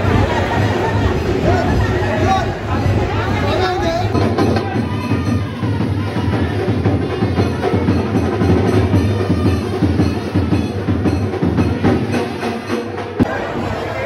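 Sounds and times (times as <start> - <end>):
drum-led music: 0.0 - 14.0.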